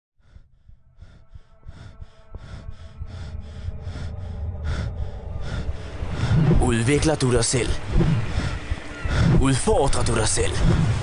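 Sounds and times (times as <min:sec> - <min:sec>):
person panting hard: 0:00.2 - 0:06.6, 0:07.8 - 0:09.4
low rumble: 0:00.2 - 0:09.6.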